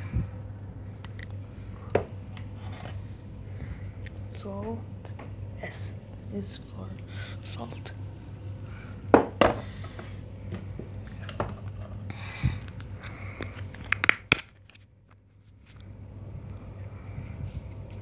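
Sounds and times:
steady low hum: 0.0s - 18.0s
rustling and crinkling: 12.6s - 15.9s.

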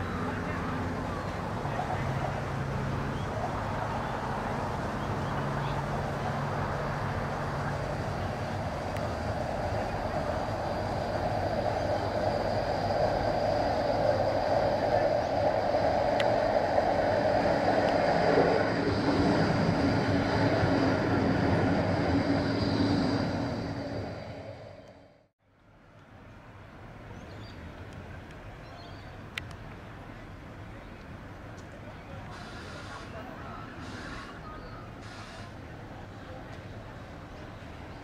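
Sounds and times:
tram running on rails: 0.0s - 25.3s, 27.6s - 38.0s
thin high whine: 6.6s - 25.3s.

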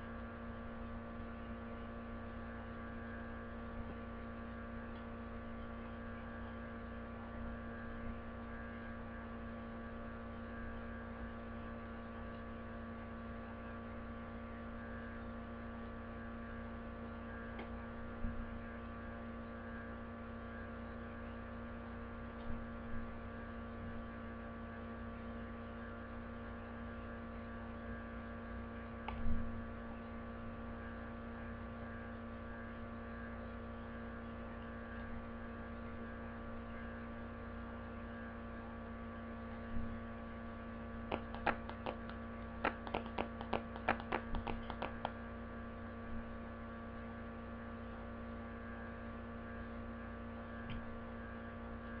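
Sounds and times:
steady electrical hum: 0.0s - 52.0s.

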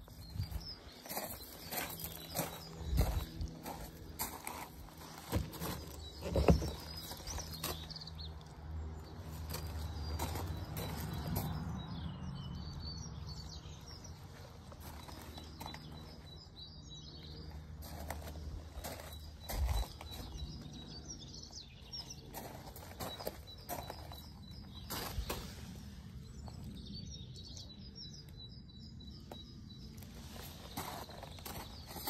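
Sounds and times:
steady low rumble: 0.0s - 6.0s
small birds chirping: 0.0s - 32.0s.

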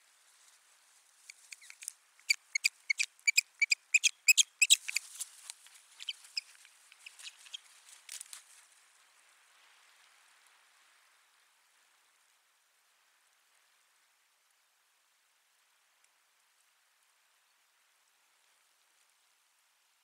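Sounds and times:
osprey whistled calls: 1.6s - 5.0s.

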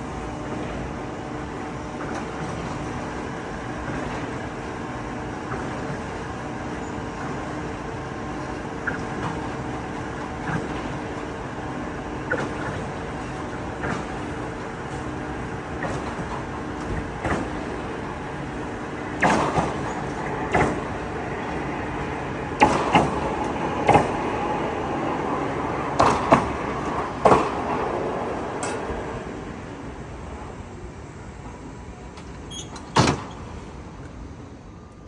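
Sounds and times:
lift platform mechanical running: 0.0s - 35.0s
sharp mechanical clunks: 19.2s - 20.9s, 22.6s - 24.2s, 32.2s - 33.5s.

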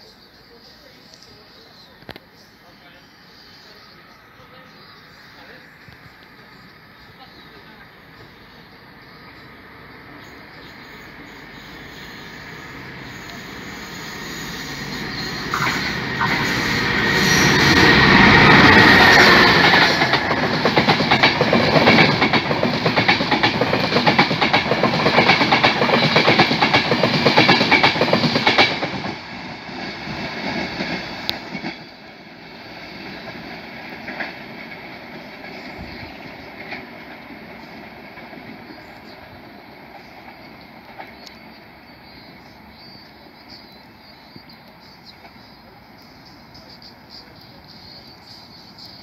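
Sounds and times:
train rushing past: 2.8s - 49.0s
wheels clacking over rails: 14.9s - 31.8s.

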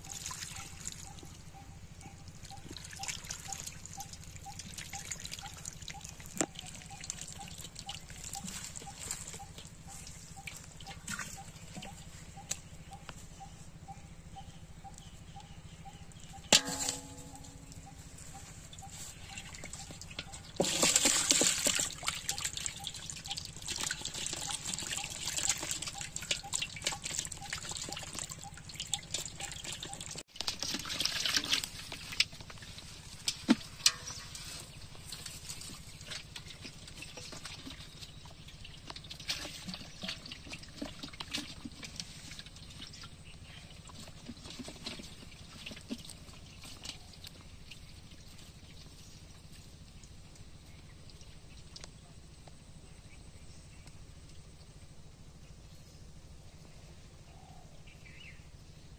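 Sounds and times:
water splashing in metal basin: 2.6s - 9.3s, 16.4s - 17.8s, 19.2s - 34.4s, 35.0s - 47.0s
fish flapping in shallow water: 18.4s - 48.8s.

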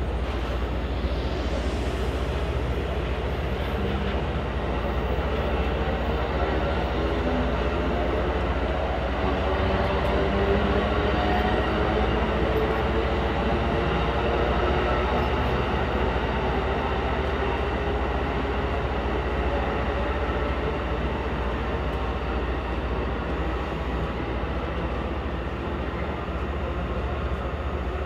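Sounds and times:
passenger train rumbling: 0.0s - 28.0s.

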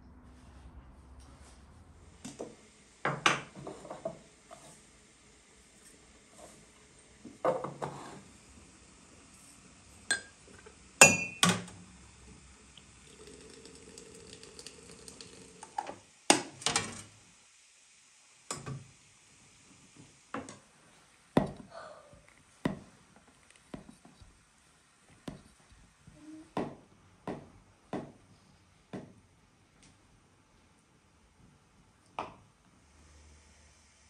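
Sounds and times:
faint steady hum: 0.0s - 34.0s
glass and china clinking on table: 10.1s - 10.4s, 11.0s - 11.6s.

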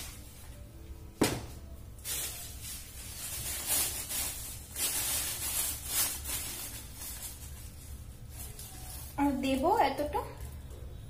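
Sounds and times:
plastic bag crinkling: 1.9s - 10.8s.

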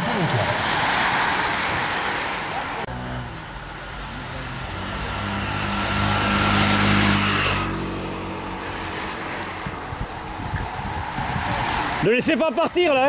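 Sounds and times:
motorbike engine passing by: 4.0s - 10.5s.

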